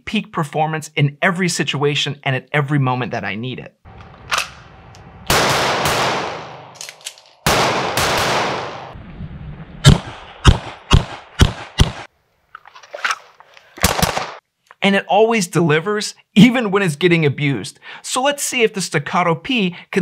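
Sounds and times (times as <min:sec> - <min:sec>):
pistol shots echoing: 0:05.3 - 0:09.0, 0:13.8 - 0:14.4.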